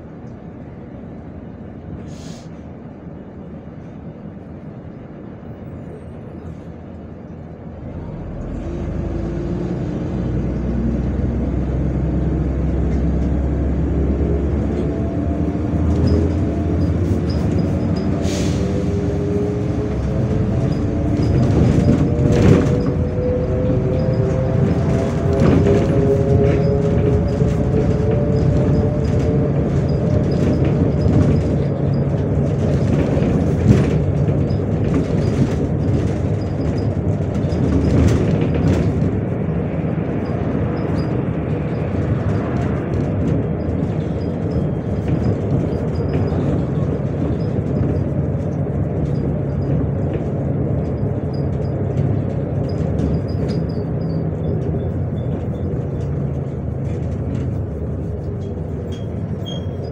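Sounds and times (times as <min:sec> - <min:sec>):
bus engine drone: 0:00.0 - 0:59.9
road noise: 0:00.0 - 0:59.9
body clicks and rattles: 0:19.0 - 0:59.9.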